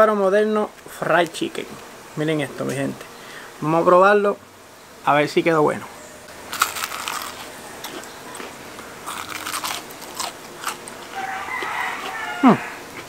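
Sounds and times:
chewing with crunches: 0:06.5 - 0:13.0
crunchy bite into fried chicken: 0:06.5 - 0:13.0.

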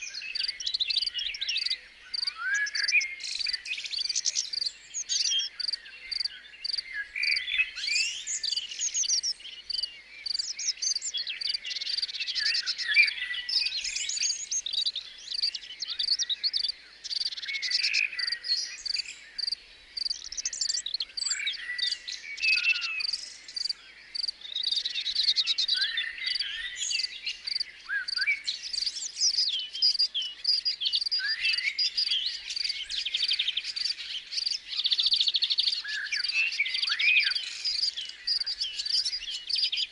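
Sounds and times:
birds chirping and trilling: 0:00.0 - 0:39.9
insects chirping: 0:05.6 - 0:06.8, 0:14.7 - 0:21.0, 0:23.0 - 0:25.3.

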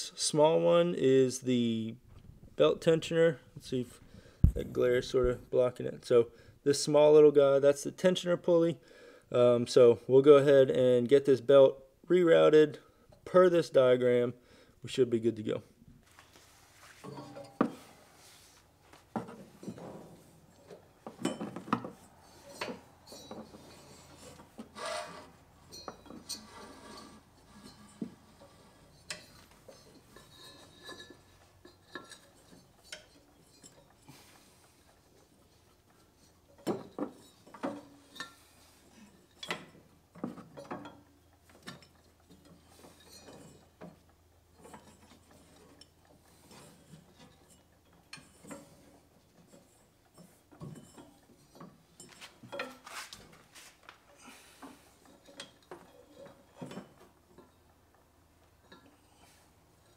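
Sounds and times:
belt rubbing and clicking: 0:22.3 - 0:25.5, 0:41.6 - 0:57.2.

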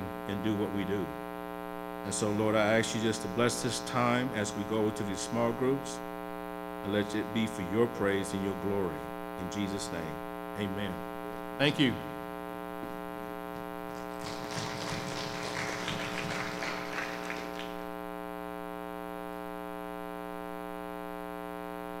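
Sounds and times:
electrical mains hum: 0:00.0 - 0:22.0
audience noise: 0:14.0 - 0:17.9.

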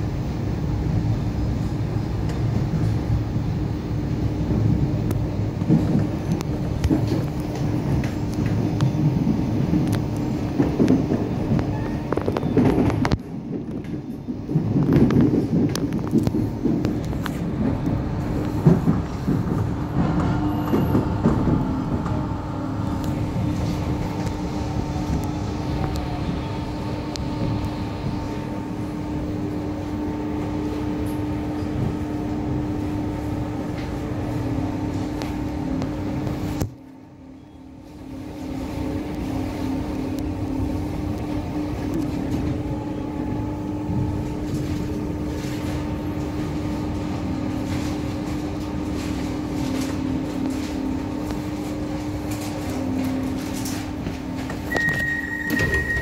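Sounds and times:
electric train hum and rumble: 0:00.0 - 0:56.0.

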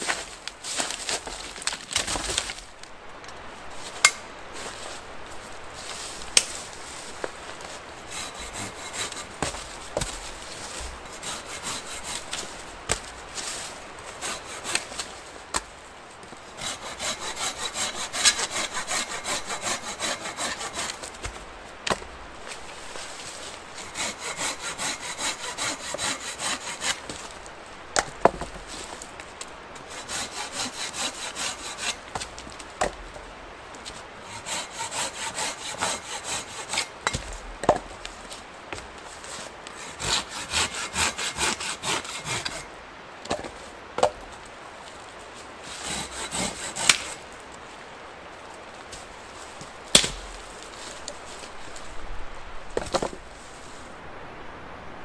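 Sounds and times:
hand saw cutting branches: 0:08.0 - 0:15.7, 0:16.6 - 0:27.3, 0:29.8 - 0:33.0, 0:33.9 - 0:37.4, 0:39.2 - 0:42.7, 0:45.6 - 0:47.4, 0:49.9 - 0:51.5.

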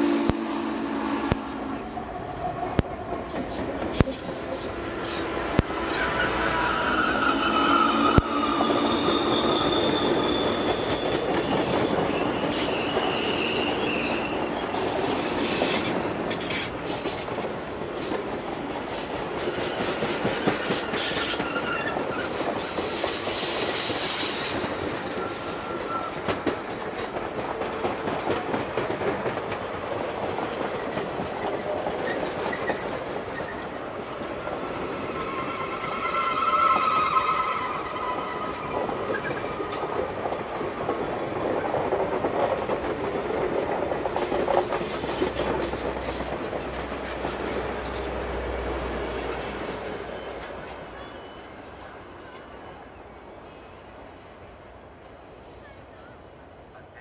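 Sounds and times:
train wheels on rails: 0:00.0 - 0:56.8
high wheel squeal: 0:04.3 - 0:17.2, 0:19.6 - 0:26.2, 0:34.4 - 0:39.8, 0:44.1 - 0:46.4, 0:49.7 - 0:51.7.

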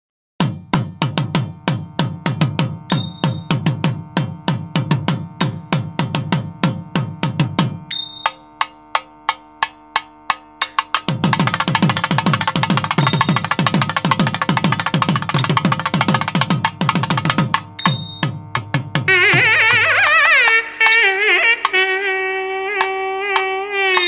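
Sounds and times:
drum percussion music: 0:00.4 - 0:24.0
held tone: 0:02.9 - 0:03.7, 0:07.9 - 0:08.7, 0:10.6 - 0:11.0, 0:12.9 - 0:16.2, 0:17.7 - 0:22.1, 0:22.7 - 0:24.0.

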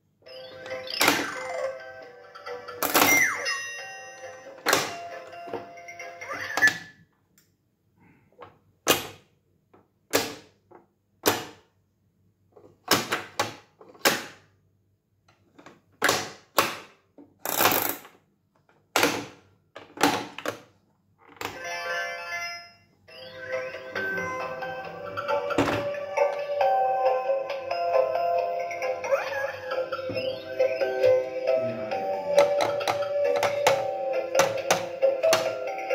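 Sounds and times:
electronic toy tune: 0:00.2 - 0:06.7, 0:21.6 - 0:34.7.

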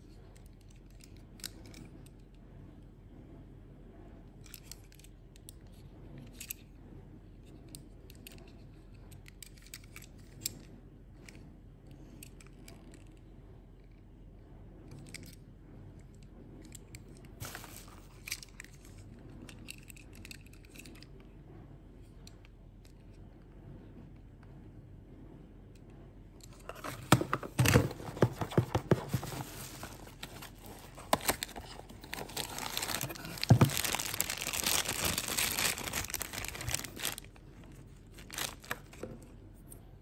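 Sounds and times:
rustling: 0:26.5 - 0:39.1.

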